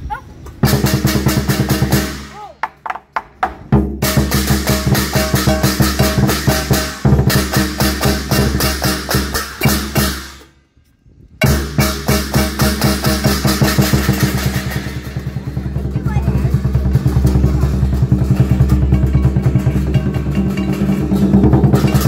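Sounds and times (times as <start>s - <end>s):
drum beaten with sticks: 0.4s - 10.6s, 11.4s - 22.0s
hand cymbals clashing: 4.0s - 10.6s, 11.4s - 22.0s.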